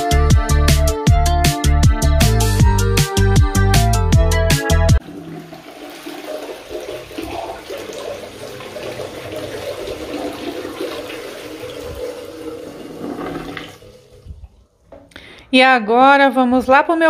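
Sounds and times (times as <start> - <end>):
toilet flushing: 5.0 - 15.0.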